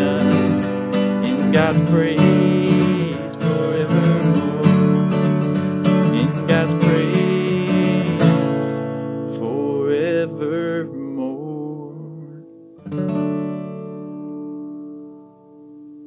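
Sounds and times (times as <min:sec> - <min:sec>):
man singing: 0:00.0 - 0:12.5
acoustic guitar strumming: 0:00.0 - 0:16.0.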